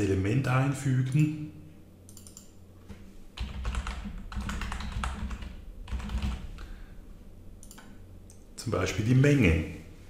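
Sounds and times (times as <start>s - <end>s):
typing on a keyboard: 3.4s - 6.5s.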